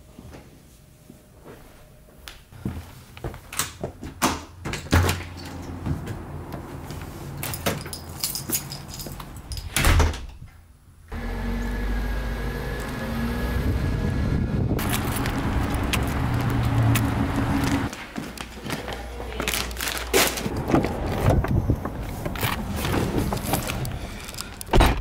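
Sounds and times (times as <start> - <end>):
car engine and road noise: 5.3 - 9.5, 11.1 - 17.9, 20.4 - 24.8.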